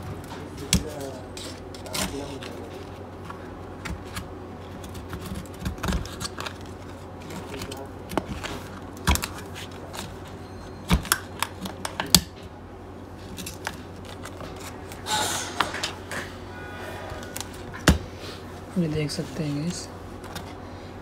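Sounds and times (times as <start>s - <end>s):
tool scraping: 14.4s - 17.8s.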